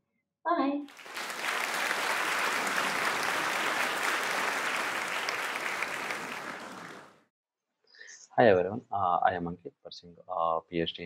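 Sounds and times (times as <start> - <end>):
crowd applauding: 0.9 - 7.2.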